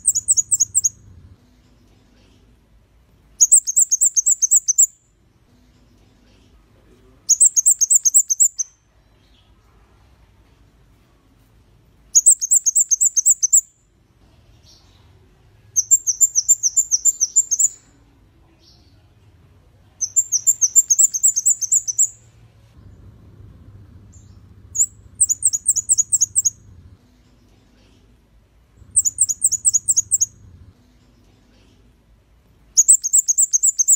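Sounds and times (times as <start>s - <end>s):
bird high-pitched ticking song: 0.0s - 1.0s, 3.4s - 5.1s, 7.3s - 9.3s, 12.1s - 13.9s, 15.8s - 17.9s, 20.0s - 22.2s, 24.1s - 26.7s, 28.8s - 30.4s, 32.8s - 33.9s.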